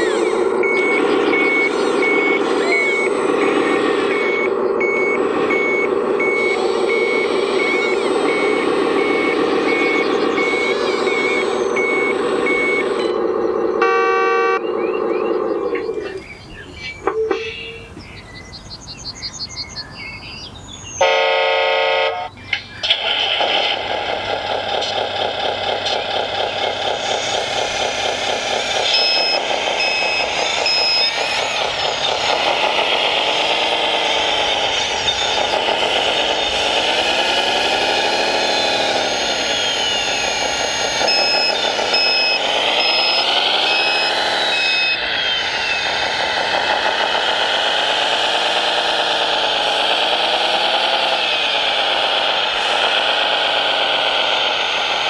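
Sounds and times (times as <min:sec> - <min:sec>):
simulated diesel engine revving: 0:00.0 - 0:16.7, 0:21.0 - 0:55.0
reversing beeper: 0:00.0 - 0:18.2, 0:23.0 - 0:55.0
horn blast: 0:13.8 - 0:14.6, 0:21.0 - 0:22.3.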